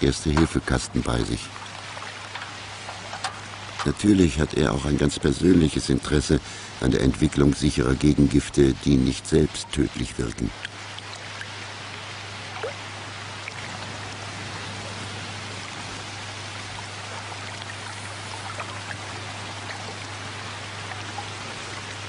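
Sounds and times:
faint water drips: 0.0 - 22.0
low steady hum: 0.0 - 22.0
water trickling: 0.0 - 22.0.

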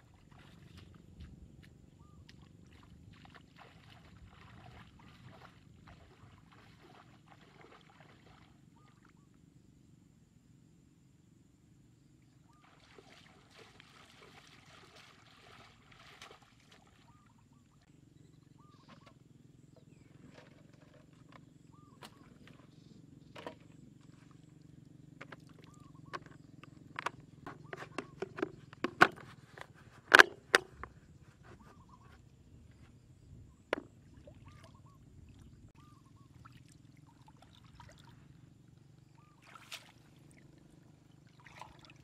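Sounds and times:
feet wading through water: 0.0 - 9.1, 12.5 - 17.9, 34.0 - 38.4, 39.1 - 42.0.

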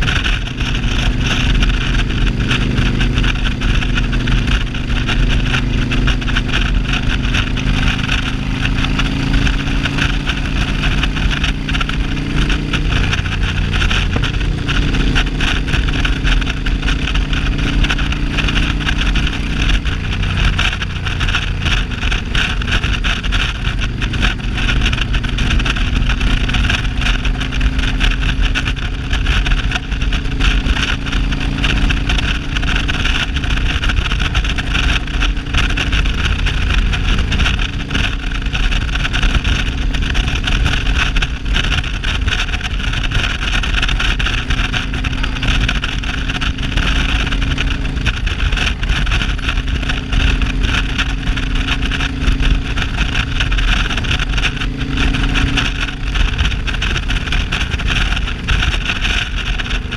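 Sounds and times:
motorcycle engine running: 0.0 - 59.9
wind noise: 0.0 - 59.9.

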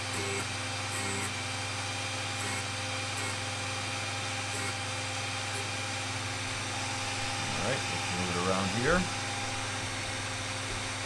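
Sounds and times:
drill bit sharpener humming: 0.0 - 11.0
light grinding: 6.4 - 11.0.

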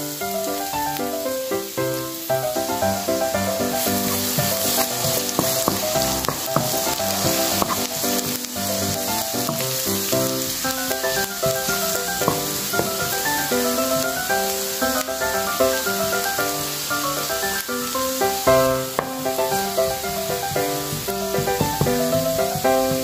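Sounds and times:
background music with melody: 0.0 - 23.0
garlic sizzling in hot oil: 0.0 - 23.0
wooden spatula scraping a pan: 3.1 - 15.1.

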